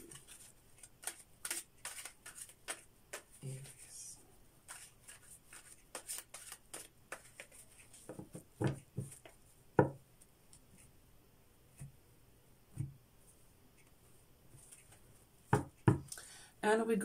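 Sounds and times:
cards being shuffled: 0.0 - 3.9, 4.7 - 8.4.

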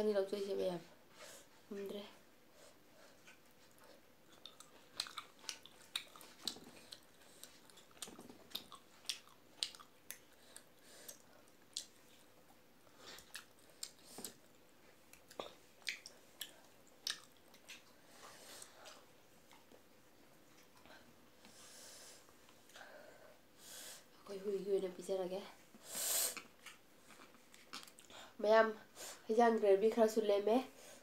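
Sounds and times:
person chewing food: 3.0 - 21.6, 26.3 - 28.2.

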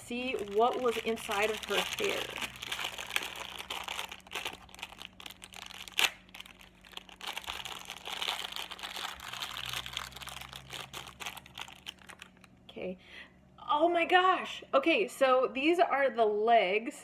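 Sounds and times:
plastic wrapper crinkling: 0.0 - 12.6.

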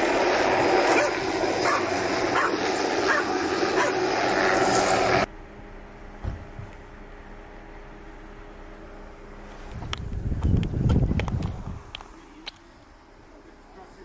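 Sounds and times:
helicopter flying overhead: 0.0 - 14.0
dog barking: 0.9 - 4.0
low thump: 6.2 - 6.7.

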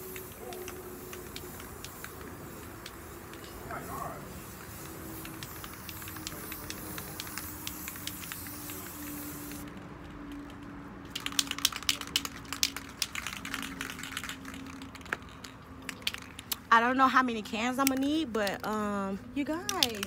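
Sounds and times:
aerosol spray can hissing: 0.0 - 9.6
spray can rattling when shaken: 0.0 - 16.7, 17.7 - 18.9, 19.7 - 20.0.

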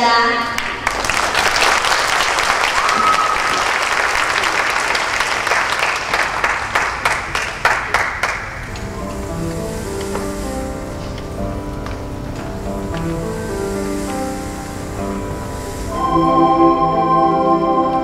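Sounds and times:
audience applauding: 0.5 - 9.3
soft music: 8.6 - 18.0.

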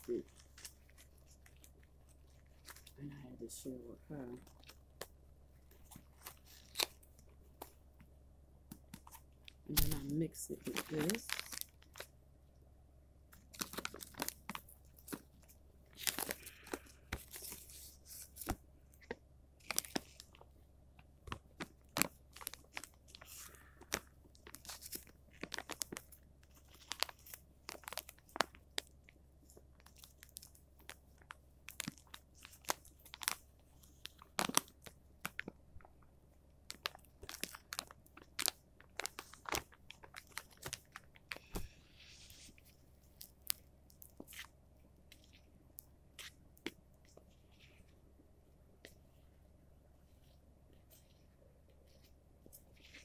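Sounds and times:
plastic packaging crinkling: 5.7 - 7.8, 8.8 - 12.2, 13.4 - 20.5, 21.2 - 36.0, 36.6 - 44.5.

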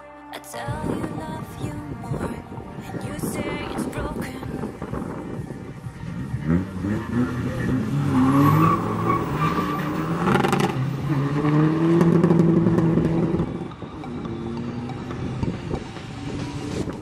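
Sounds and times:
diesel car engine accelerating: 3.6 - 17.0.

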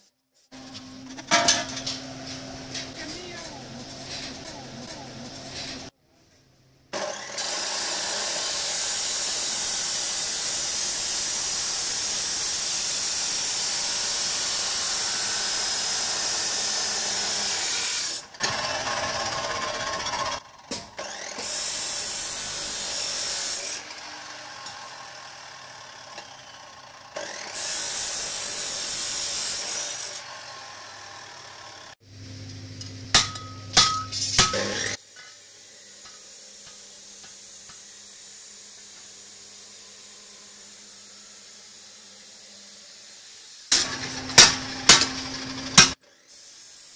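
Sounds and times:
cut-off saw grinding steel pipe: 7.0 - 20.4, 21.0 - 32.0.

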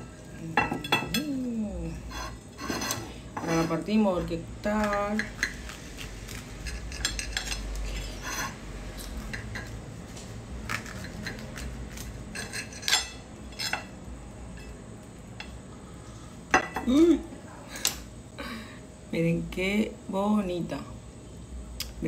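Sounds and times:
knife scraping a plate: 2.0 - 4.3, 4.9 - 9.8, 10.7 - 14.0.

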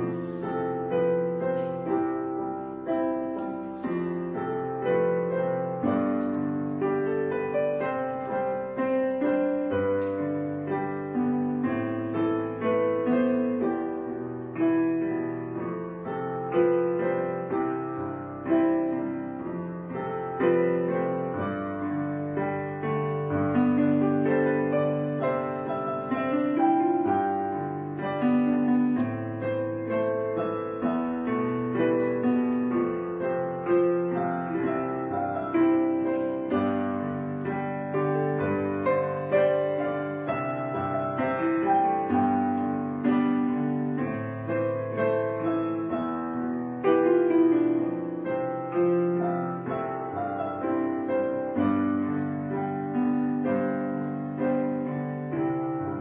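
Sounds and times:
gentle piano music: 0.0 - 56.0.

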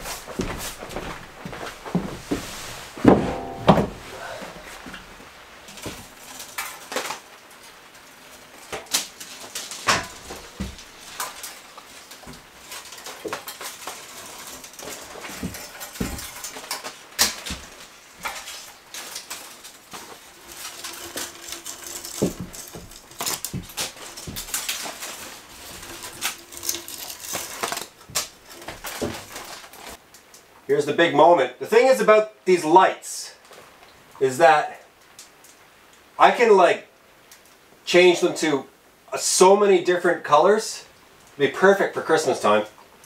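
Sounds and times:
hands fastening string lights: 5.7 - 30.5.

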